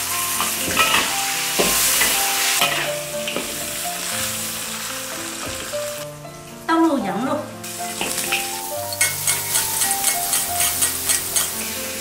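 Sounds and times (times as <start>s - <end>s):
spices sizzling in hot oil: 0.0s - 6.1s, 7.6s - 12.0s
metal spatula scraping pan: 0.4s - 1.1s.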